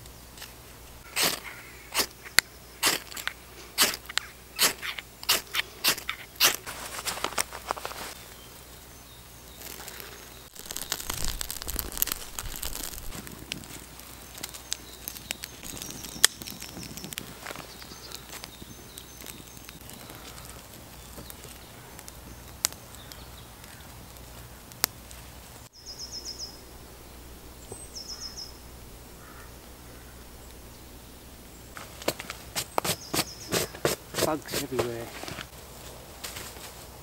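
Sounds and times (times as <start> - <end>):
fire crackling: 0.0 - 37.0
knife scraping a stick: 0.4 - 8.2, 32.1 - 35.5.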